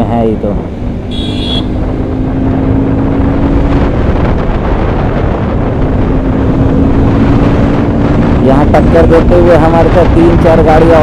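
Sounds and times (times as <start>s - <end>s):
motorcycle engine running: 0.0s - 11.0s
wind buffeting on microphone: 0.0s - 11.0s.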